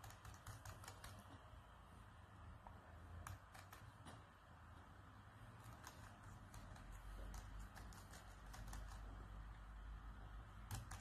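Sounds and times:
laptop keyboard clicks: 10.6 - 11.0.

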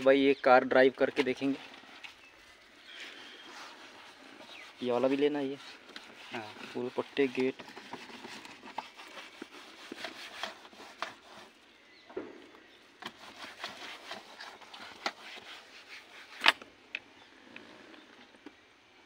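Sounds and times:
hand wiping dashboard with clicks: 1.2 - 11.6, 13.0 - 16.6.

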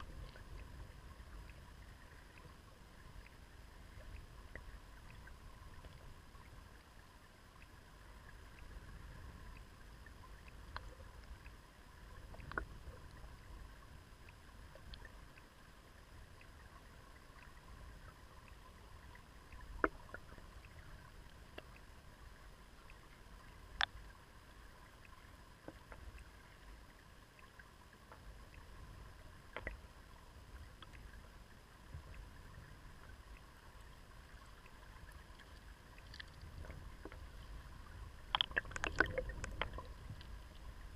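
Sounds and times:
underwater river current rumble: 0.0 - 40.9
stones knocking underwater: 38.3 - 39.9.

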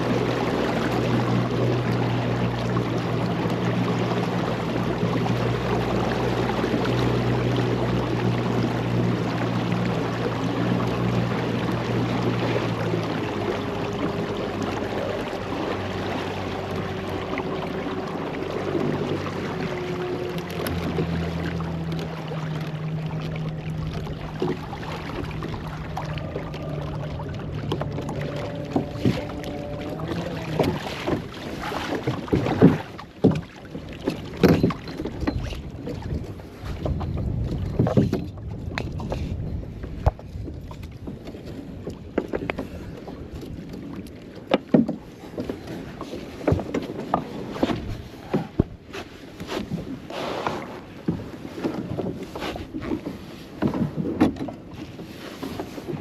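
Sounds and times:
water splashing: 0.0 - 56.0
knocks against kayak hull: 30.1 - 36.1, 44.4 - 45.5, 46.4 - 48.8, 53.6 - 54.6.

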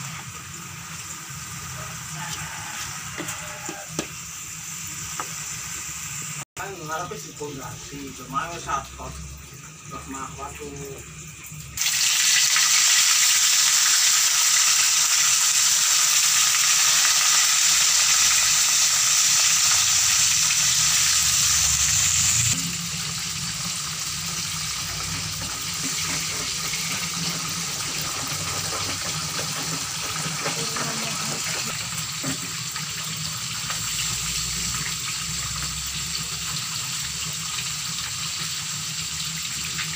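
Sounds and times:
tap water running into sink: 24.3 - 39.9.

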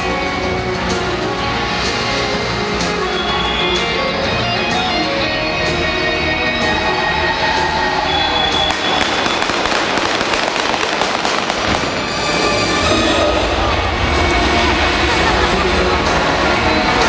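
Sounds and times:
rock guitar music over loudspeakers: 0.0 - 12.0.

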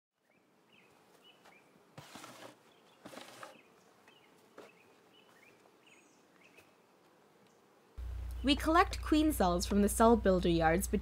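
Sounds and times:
bird chirping: 2.6 - 6.8.

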